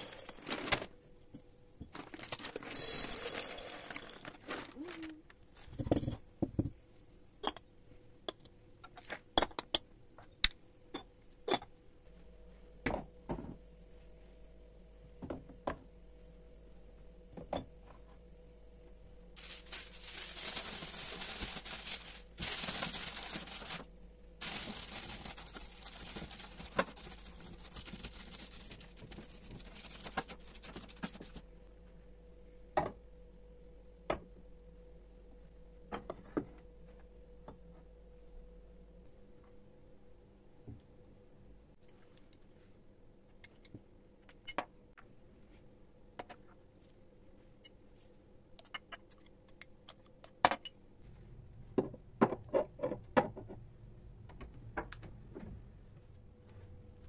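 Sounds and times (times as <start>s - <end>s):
aluminium foil crinkling: 1.9s - 3.3s, 19.4s - 31.4s.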